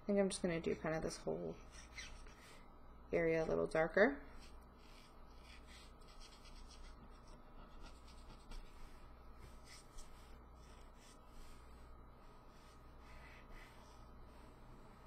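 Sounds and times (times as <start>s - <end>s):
marker nib rubbing on paper: 1.5s - 2.6s, 4.3s - 14.6s.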